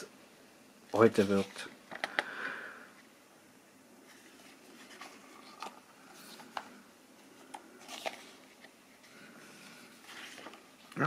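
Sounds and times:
paper pages rustling: 4.1s - 11.0s.

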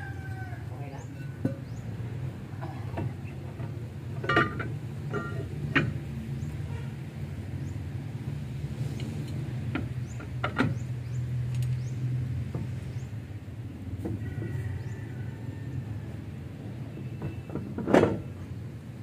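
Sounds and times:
low engine hum: 0.0s - 19.0s
metal clinks and knocks: 4.2s - 6.0s.

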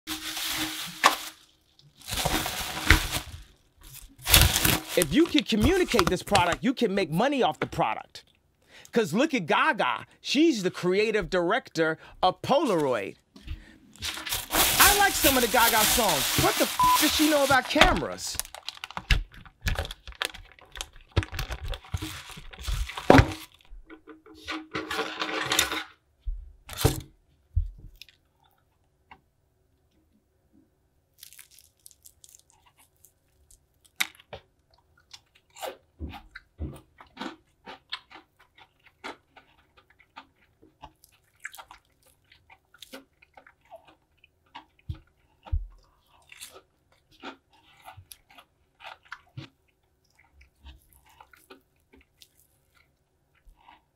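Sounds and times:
fried chicken crust crunching: 0.1s - 6.6s, 14.0s - 23.6s, 31.2s - 53.9s
rustling handling noise: 0.1s - 6.6s, 12.7s - 23.7s.

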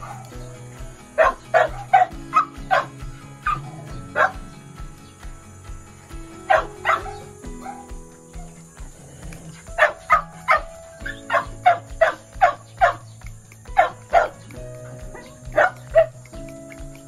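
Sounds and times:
small dog barking: 0.0s - 0.3s, 1.2s - 4.4s, 6.5s - 8.6s, 9.7s - 13.0s, 13.8s - 14.4s, 15.0s - 16.2s
soft background music: 0.0s - 17.0s.

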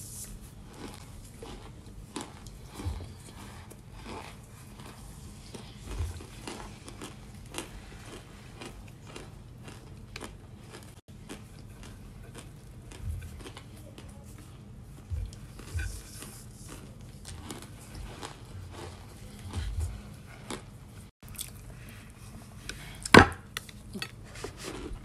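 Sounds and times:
crunchy food chewing: 0.2s - 25.0s
dull low thumps: 15.0s - 16.1s, 19.5s - 20.1s.

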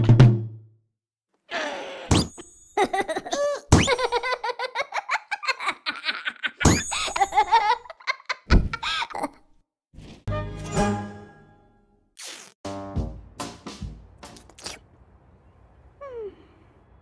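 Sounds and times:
cartoon cat laughing: 3.9s - 9.4s
sudden thumps: 8.5s - 8.8s.

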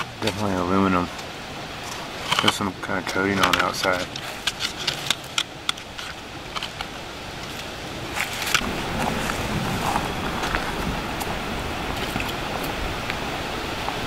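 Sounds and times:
steady rushing noise: 0.0s - 14.0s
aluminum sheet clicking and crinkling: 2.3s - 8.6s.

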